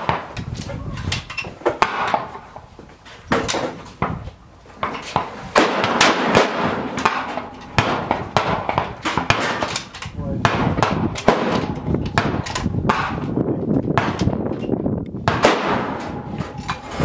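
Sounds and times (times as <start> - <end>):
gunshots: 5.5 - 13.4, 14.0 - 14.4, 15.2 - 17.0.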